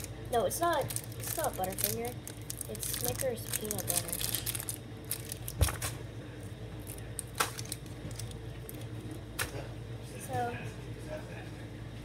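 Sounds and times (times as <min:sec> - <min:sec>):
plastic wrapper crinkling: 0:00.0 - 0:06.0, 0:06.8 - 0:09.0
low steady hum: 0:00.0 - 0:12.0.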